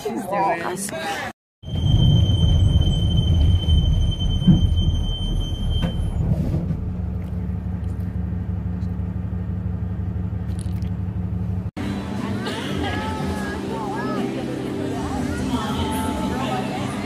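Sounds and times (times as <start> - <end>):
high-pitched squeal: 1.6 - 6.3
bus engine rumble: 1.7 - 17.0.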